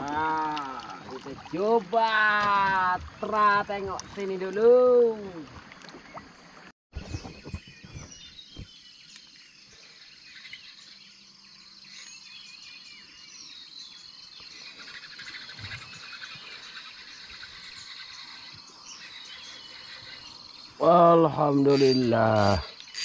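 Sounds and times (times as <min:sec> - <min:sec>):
birds chirping: 0:00.0 - 0:23.0
high insect drone: 0:09.0 - 0:23.0.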